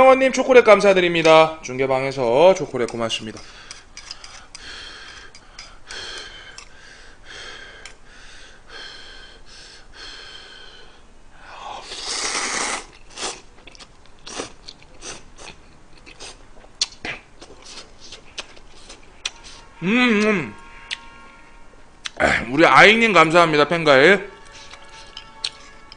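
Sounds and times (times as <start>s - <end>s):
person slurping noodles: 11.7s - 13.5s
wet chewing: 12.1s - 19.6s, 24.4s - 25.9s.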